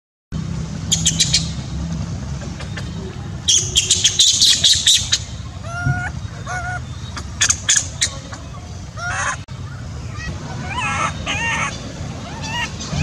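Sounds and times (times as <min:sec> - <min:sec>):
high animal chirps: 0:02.6 - 0:09.5, 0:10.1 - 0:13.0
short squawking calls: 0:02.6 - 0:13.0.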